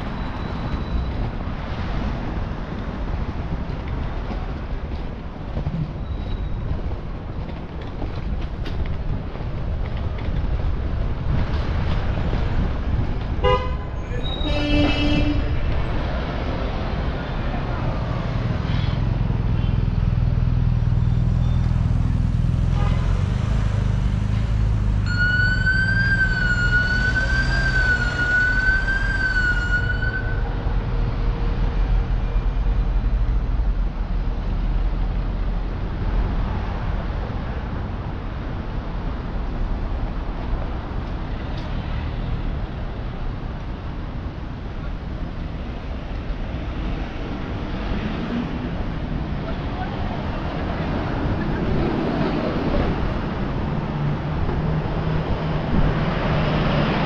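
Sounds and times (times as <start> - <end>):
street traffic: 0.0 - 57.0
skate wheels rolling on pavement: 0.4 - 13.6
wind rumble on microphone: 1.1 - 14.4
cars driving past: 9.6 - 28.9, 29.7 - 57.0.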